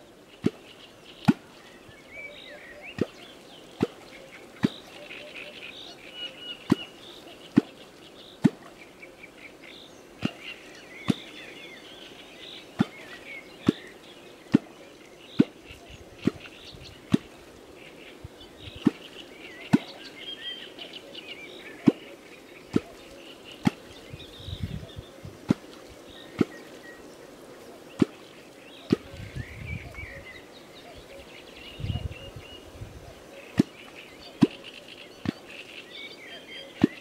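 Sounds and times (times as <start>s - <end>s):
birds chirping: 0.0s - 37.0s.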